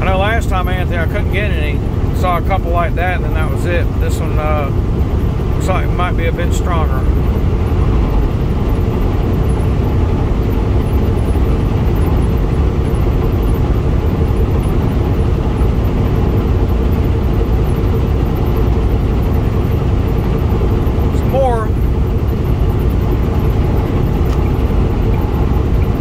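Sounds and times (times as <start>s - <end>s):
truck road and engine noise: 0.0s - 26.0s.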